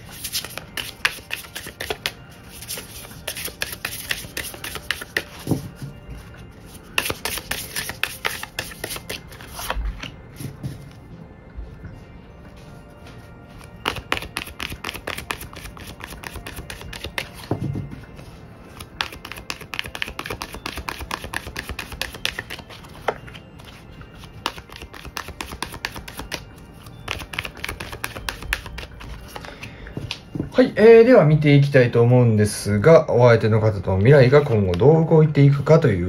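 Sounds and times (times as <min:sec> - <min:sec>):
cards being shuffled: 0:00.0 - 0:05.8, 0:06.8 - 0:10.1, 0:13.8 - 0:17.5, 0:18.7 - 0:26.4, 0:27.1 - 0:30.2
soft background music: 0:00.0 - 0:36.0.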